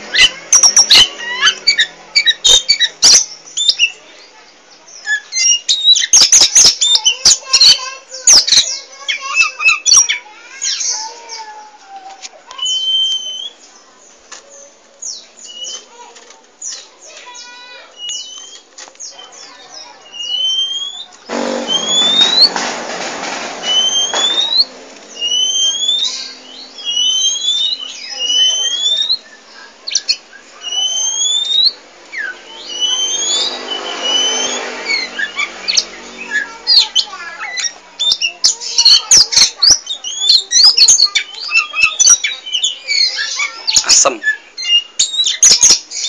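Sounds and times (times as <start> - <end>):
bird scratchy chattering: 15.4 - 45.9
bird whistling rising notes: 20.1 - 22.7, 23.6 - 29.4, 30.0 - 39.0.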